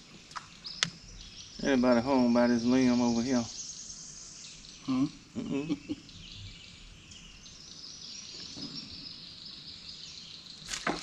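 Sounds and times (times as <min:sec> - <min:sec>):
faint bird calls: 0:00.0 - 0:07.3
insect chorus buzzing: 0:00.0 - 0:11.0.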